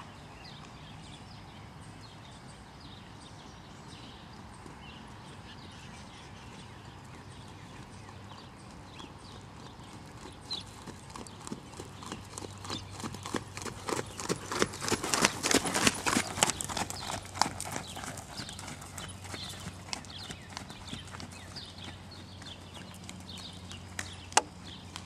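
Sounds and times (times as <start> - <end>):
horse hoofbeats on sand: 6.5 - 25.0.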